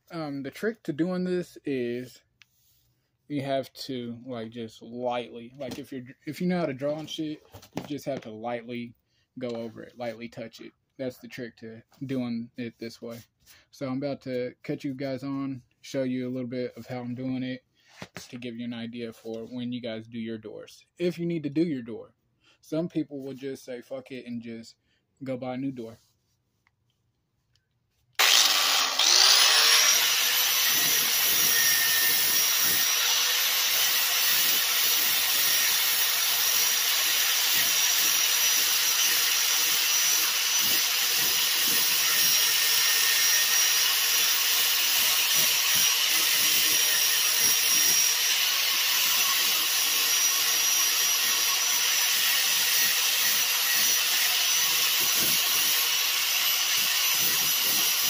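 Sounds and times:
angle grinder whining: 0:28.2 - 0:58.0
disc sanding body filler: 0:28.2 - 0:58.0.

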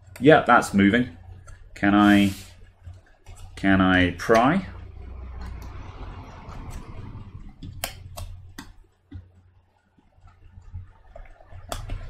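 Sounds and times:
sharp plastic clicks: 0:06.5 - 0:12.0.

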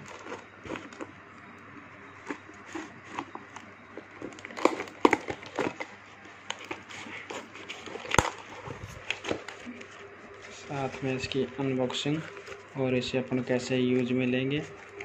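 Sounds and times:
cardboard and plastic rustling: 0:00.0 - 0:01.2, 0:02.2 - 0:15.0
cardboard cracking: 0:02.3 - 0:12.7.

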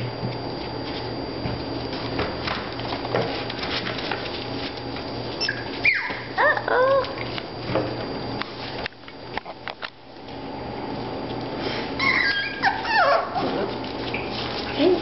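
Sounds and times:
puppies whimpering and yipping: 0:05.4 - 0:07.2, 0:12.0 - 0:13.8.

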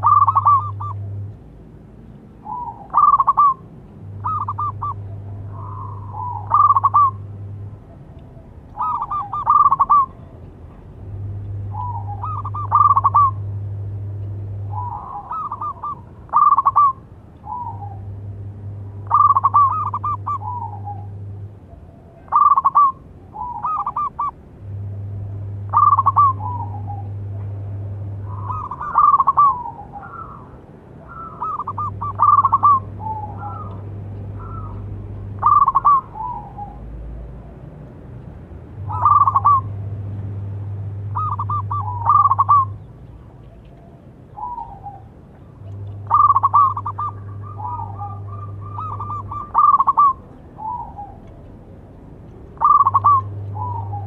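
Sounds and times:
dove cooing: 0:00.0 - 0:01.3, 0:02.4 - 0:10.4, 0:11.1 - 0:13.9, 0:14.5 - 0:37.9, 0:38.8 - 0:40.0, 0:40.7 - 0:54.0
low hum: 0:00.0 - 0:54.0.

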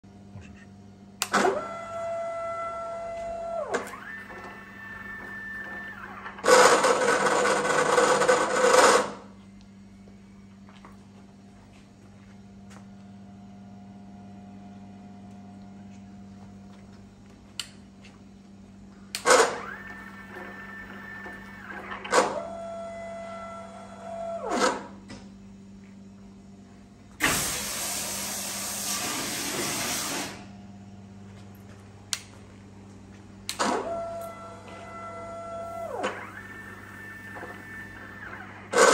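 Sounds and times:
steady low hum: 0:00.0 - 0:38.9
electric motors whining: 0:01.2 - 0:09.3, 0:19.1 - 0:25.2, 0:33.4 - 0:38.9.

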